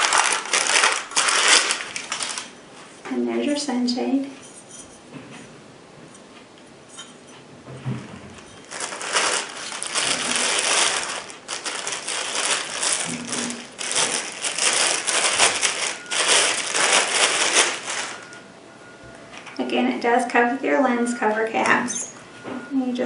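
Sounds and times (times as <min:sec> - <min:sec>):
plastic bag crinkling: 0:00.0 - 0:02.6, 0:08.4 - 0:18.4.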